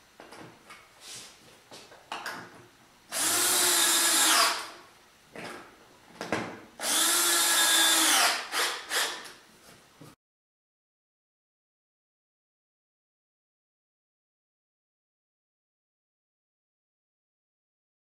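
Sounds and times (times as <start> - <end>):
cordless drill driving screws: 3.1 - 4.8, 6.8 - 9.4.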